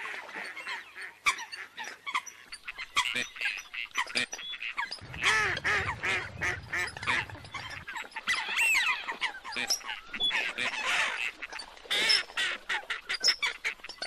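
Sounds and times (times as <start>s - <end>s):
ducks and waterbirds calling: 0.0s - 14.0s
low rumble: 5.0s - 8.0s.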